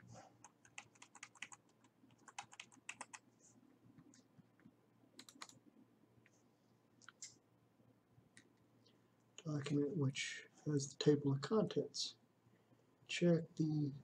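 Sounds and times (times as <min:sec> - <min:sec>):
keyboard and mouse clicking: 0:00.4 - 0:03.2, 0:05.2 - 0:05.6.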